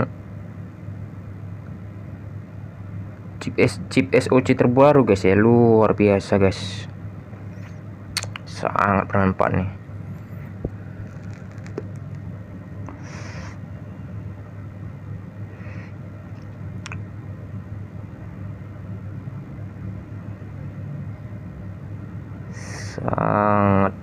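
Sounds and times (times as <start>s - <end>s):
low background rumble: 0.0s - 24.0s
sharp click: 8.2s - 8.4s
short hisses: 12.9s - 13.6s.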